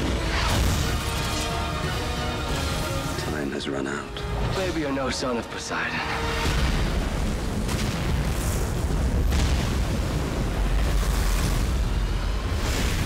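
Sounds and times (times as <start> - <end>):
churning water rushing: 4.3 - 13.0.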